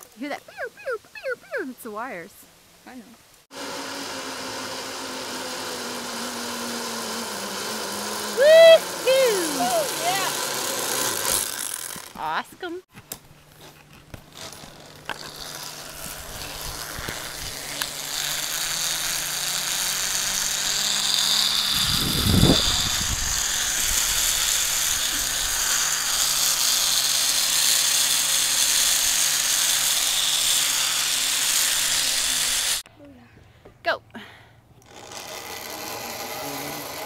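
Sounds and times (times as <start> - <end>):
zip line pulleys whirring on cable: 3.5 - 12.3, 14.3 - 32.8, 34.8 - 37.0.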